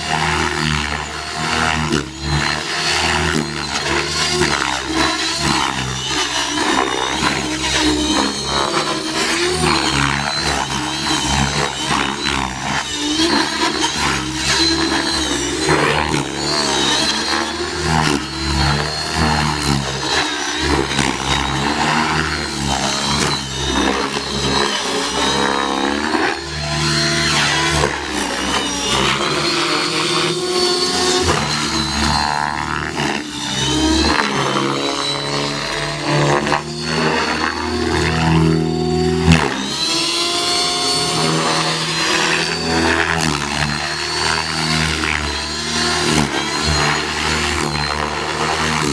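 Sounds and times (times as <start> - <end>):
rc helicopter rotor and motor buzz: 0.0 - 48.9.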